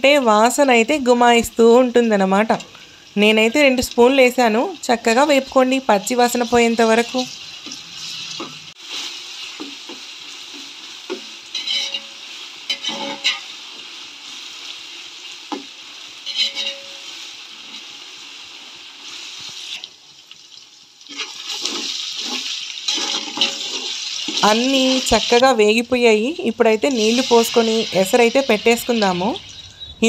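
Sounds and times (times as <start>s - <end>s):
onions sizzling in hot oil: 0.0s - 29.9s
metal spatula scraping pot: 11.5s - 13.5s, 16.2s - 17.9s, 21.1s - 25.3s.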